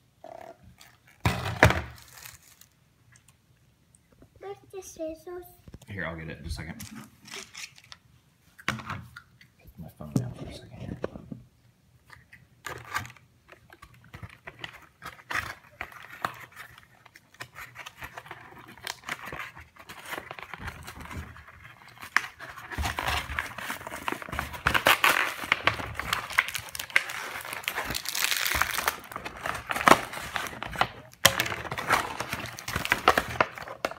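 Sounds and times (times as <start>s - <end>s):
plastic packaging crinkling: 1.8s - 2.8s, 12.7s - 33.9s.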